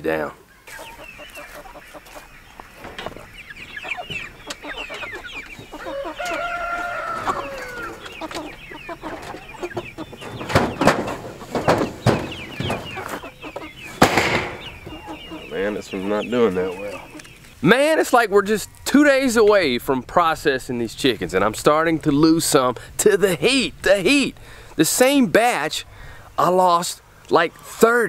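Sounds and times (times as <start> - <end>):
chickens clucking and squawking: 0.0 - 28.0
long drawn-out chicken call: 3.9 - 9.7
loud clattering thumps: 9.2 - 13.2, 14.0 - 15.0.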